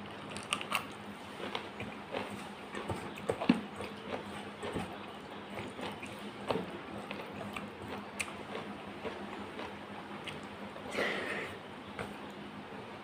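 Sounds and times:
chewing: 0.1 - 12.4.

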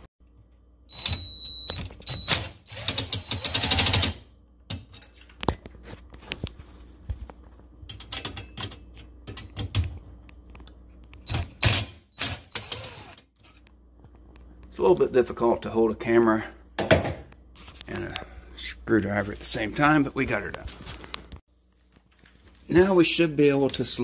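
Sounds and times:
power driver whining and clicking: 11.1 - 13.3.

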